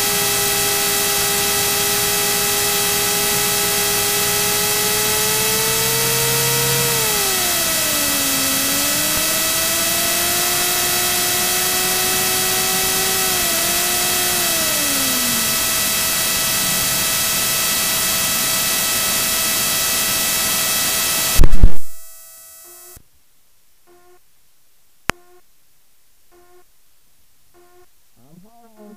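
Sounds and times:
aircraft engine rush with whine: 0.0 - 21.4
loud burst: 0.0 - 22.2
sharp click: 21.4 - 22.2.

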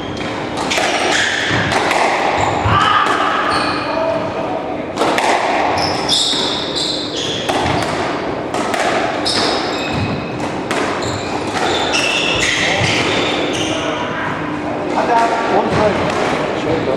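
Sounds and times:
squash ball cracking off rackets: 0.2 - 3.5, 4.9 - 6.7, 7.4 - 13.3
shoes squeaking on wooden floor: 5.8 - 8.0, 9.2 - 14.0.

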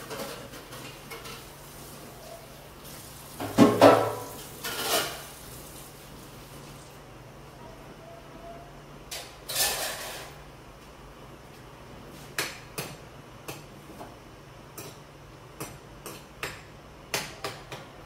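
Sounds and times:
metal spoon scraping a wok: 4.6 - 5.2, 9.5 - 10.4.

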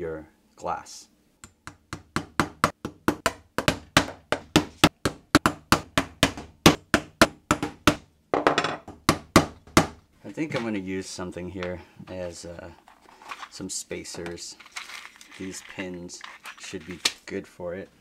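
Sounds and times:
hammer striking nails into wood: 1.4 - 8.1, 8.8 - 10.0.

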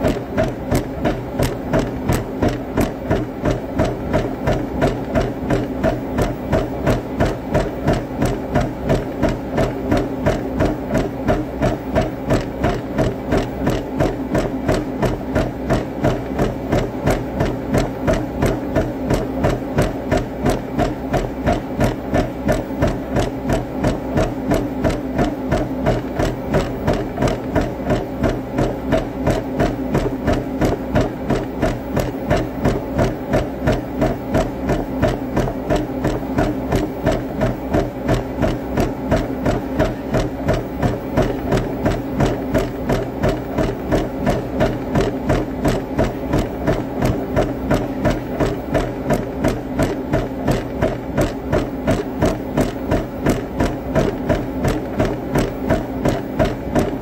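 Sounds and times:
footfalls on treadmill: 0.0 - 57.0
treadmill motor hum: 0.0 - 57.0.

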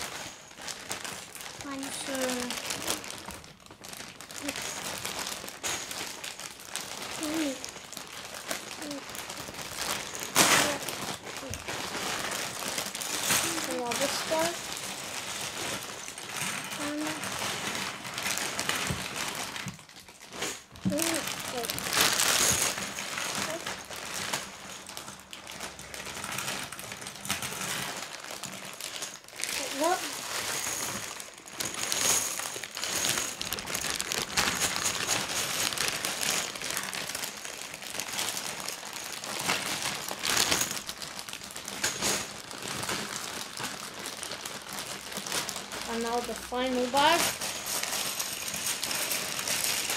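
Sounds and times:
plastic bag crinkling: 0.0 - 49.9
plastic pieces clattering: 0.0 - 49.9.

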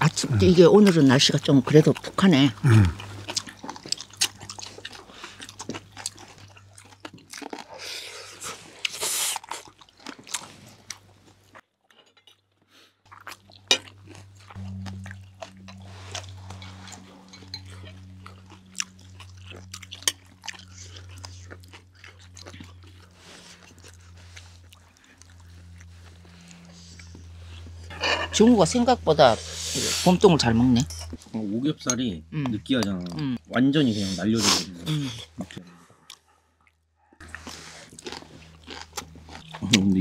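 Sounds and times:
people chewing and crunching food: 0.0 - 40.0
low hum: 13.6 - 33.9.

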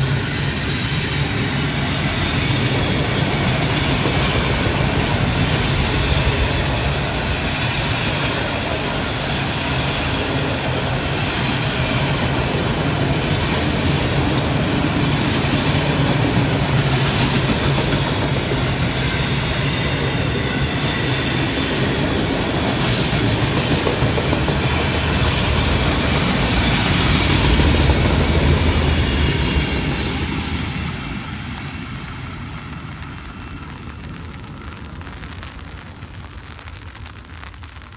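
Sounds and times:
train wheels rumbling and clattering: 0.0 - 35.2
faint high wheel squeal: 28.6 - 32.7.

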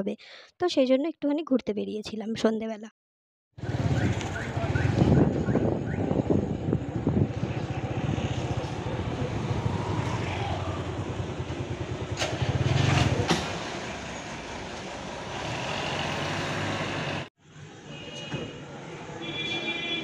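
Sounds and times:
wind on microphone: 3.6 - 11.8
road traffic: 3.6 - 20.0.

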